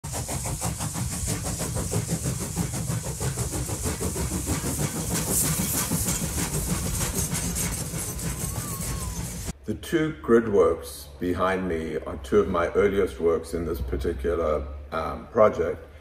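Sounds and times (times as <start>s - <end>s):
train rumbling on rails: 0.0s - 9.6s
fast uneven rattle: 0.1s - 9.5s.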